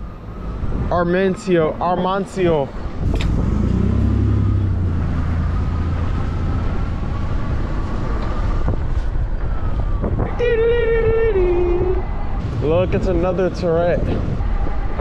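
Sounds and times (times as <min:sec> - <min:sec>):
road noise rumble: 0:00.0 - 0:15.0
wind buffeting microphone: 0:00.3 - 0:15.0.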